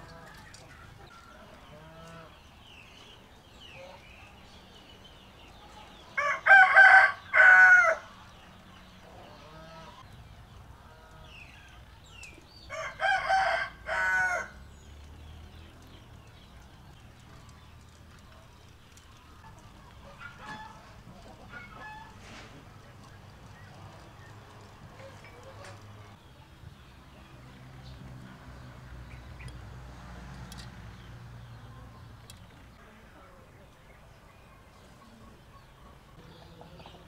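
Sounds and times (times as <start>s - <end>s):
rooster crowing: 6.2s - 8.1s, 12.7s - 14.6s.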